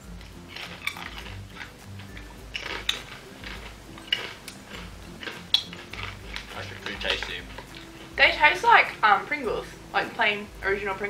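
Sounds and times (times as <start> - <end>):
sharp crunches: 0.0 - 8.0
crunchy snacks being chewed: 0.0 - 8.2.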